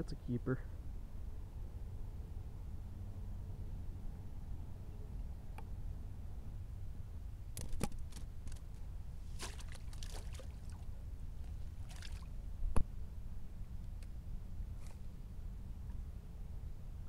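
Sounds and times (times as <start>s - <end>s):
water splashing and dripping: 9.3s - 12.3s.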